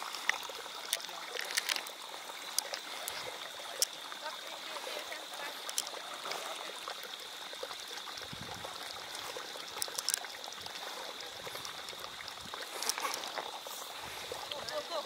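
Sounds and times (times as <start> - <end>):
flowing water rushing: 0.0 - 15.0
sharp clicks: 9.7 - 10.3.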